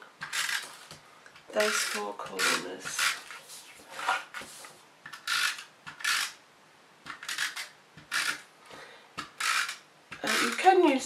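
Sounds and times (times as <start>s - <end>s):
tape runner rasping on cardstock: 7.1s - 8.4s, 9.2s - 10.8s.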